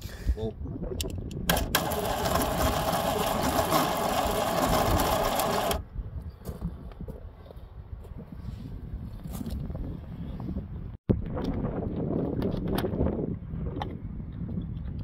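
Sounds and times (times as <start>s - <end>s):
starter motor cranking engine: 1.5s - 5.8s.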